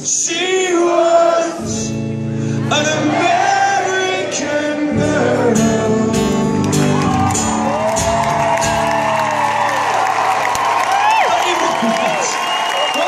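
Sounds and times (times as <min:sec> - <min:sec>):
acoustic guitar strumming: 0:01.0 - 0:09.4
person singing: 0:02.6 - 0:07.0.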